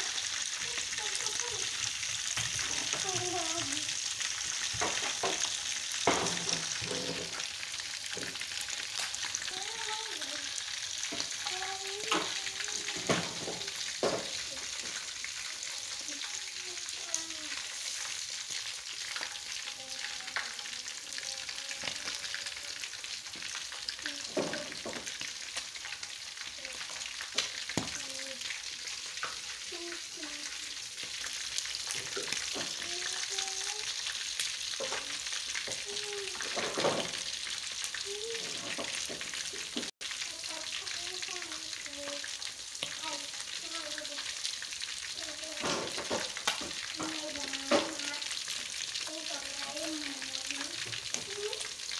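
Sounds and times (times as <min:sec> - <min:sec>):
meat deep-frying in oil: 0:00.0 - 0:51.9
oil popping and crackling: 0:00.0 - 0:51.9.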